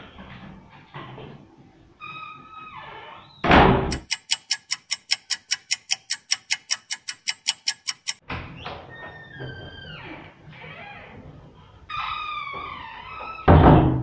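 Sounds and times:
fast even ticking: 3.9s - 8.2s.

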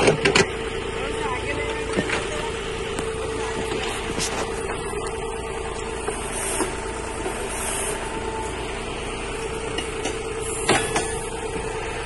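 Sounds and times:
backhoe digging: 0.0s - 12.0s
tractor diesel engine running: 0.0s - 12.0s.

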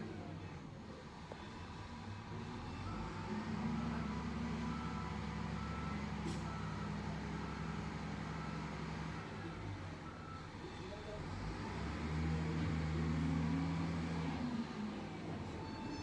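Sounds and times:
diesel engine under load: 0.0s - 16.0s
reversing alarm beeping: 15.6s - 16.0s.

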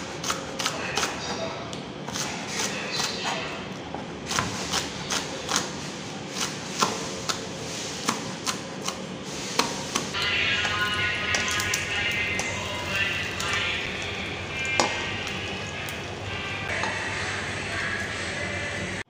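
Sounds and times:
knife chopping on cutting board: 4.3s - 5.8s, 6.4s - 9.0s
fish frying in oil: 10.2s - 16.7s.

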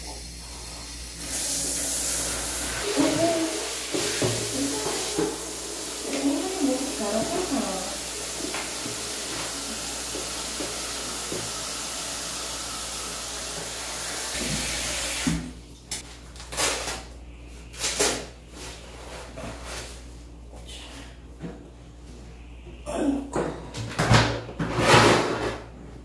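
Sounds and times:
water running from hose into basin: 0.0s - 15.6s
water splashing and sloshing: 2.4s - 12.3s.

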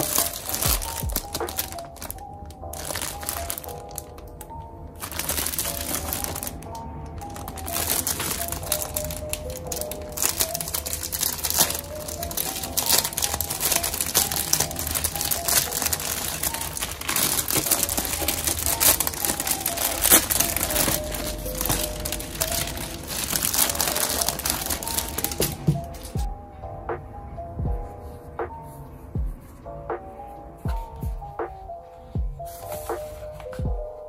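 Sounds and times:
plastic bag crinkling: 0.0s - 26.2s
soft background music: 0.0s - 34.0s.

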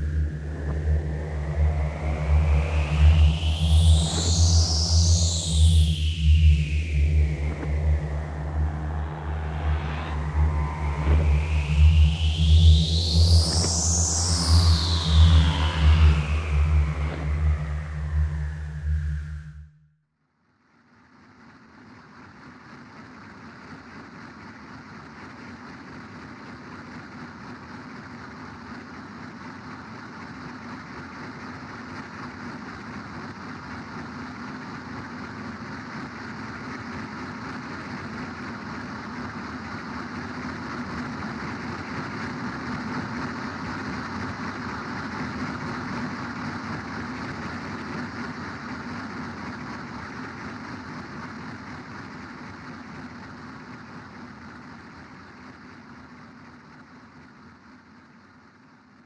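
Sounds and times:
industrial drone rumble and hiss: 0.0s - 19.6s.

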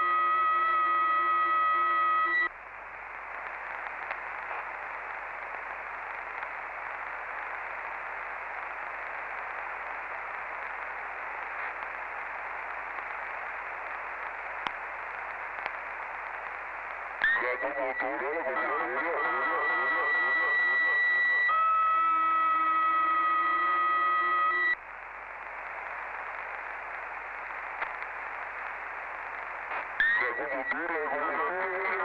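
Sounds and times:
radio receiver hiss: 0.6s - 32.0s
faint click: 3.8s - 4.6s, 14.2s - 15.8s, 27.8s - 28.1s.

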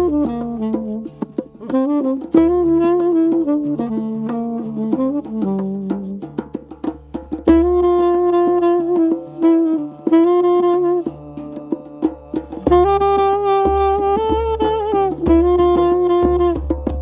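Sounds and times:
saxophone improvising: 0.0s - 6.5s, 7.4s - 17.0s
hand drum patter: 0.0s - 17.0s.

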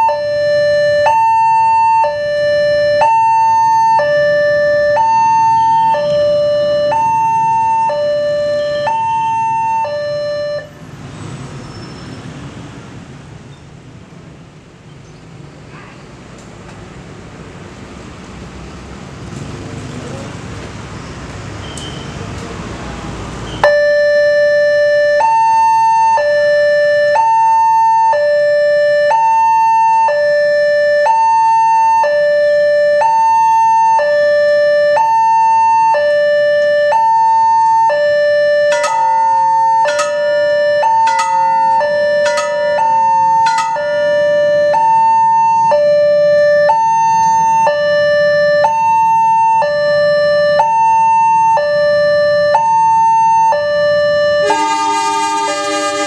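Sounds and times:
level crossing two-tone alarm: 0.0s - 10.8s, 23.6s - 56.0s
sharp ringing strikes: 38.7s - 44.4s.

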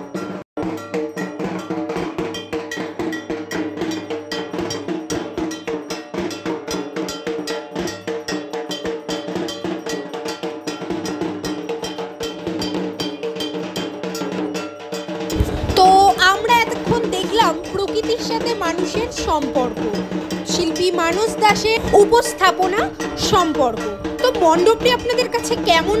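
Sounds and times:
drums: 0.0s - 26.0s
gong struck rapidly: 15.3s - 26.0s.

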